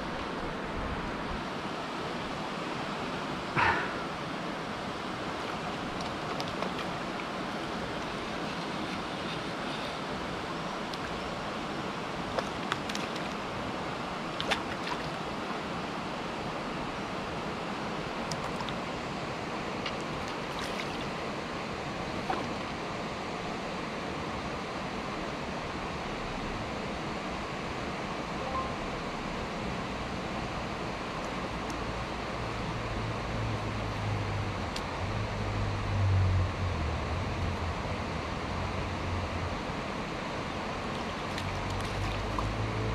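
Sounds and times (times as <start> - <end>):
river water rushing: 0.0 - 26.0, 38.0 - 42.9.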